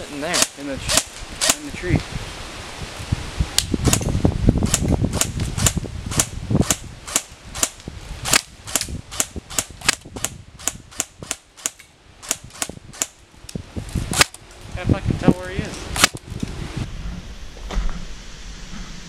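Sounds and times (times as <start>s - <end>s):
airsoft rifle shots: 0.2s - 1.7s, 3.8s - 13.2s, 14.1s - 14.4s, 15.9s - 16.2s
low rumble: 0.8s - 19.0s.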